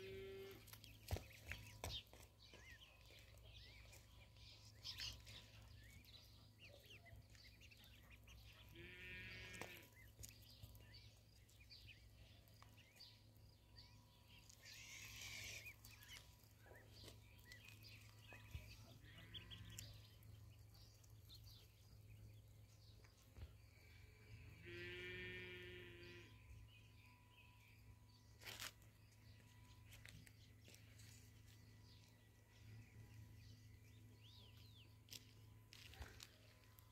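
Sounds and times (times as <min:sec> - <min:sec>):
ducklings peeping: 0:00.0 - 0:13.2, 0:14.2 - 0:24.6
faint low hum: 0:00.0 - 0:36.9.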